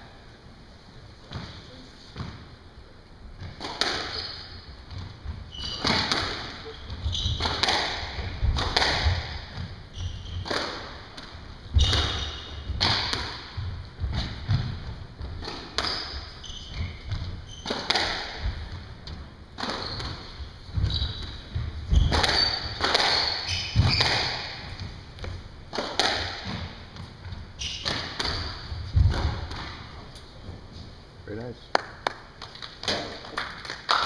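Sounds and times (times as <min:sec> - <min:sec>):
squash ball hits echoing: 0:03.4 - 0:30.0
shoes squeaking on hardwood: 0:04.0 - 0:07.7, 0:09.4 - 0:10.5, 0:15.8 - 0:17.8, 0:19.0 - 0:24.9.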